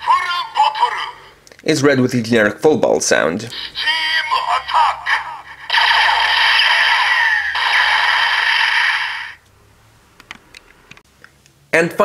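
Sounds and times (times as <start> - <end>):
toy gun electronic sound effect: 3.8 - 9.4.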